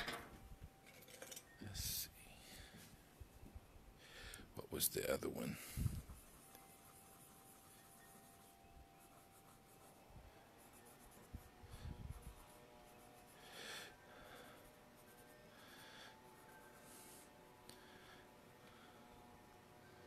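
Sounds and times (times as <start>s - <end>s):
pencil scratching on paper: 6.0s - 13.5s, 14.2s - 17.2s.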